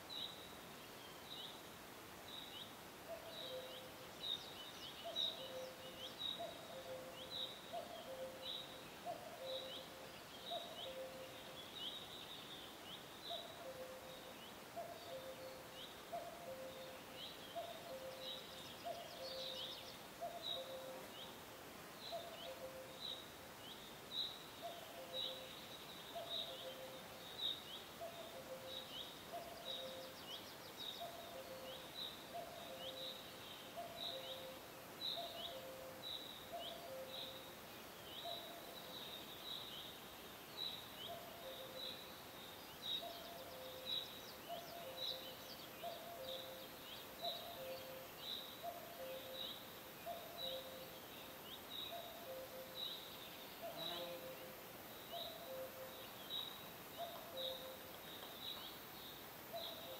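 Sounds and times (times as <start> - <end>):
faint background hiss: 0.0 - 59.9.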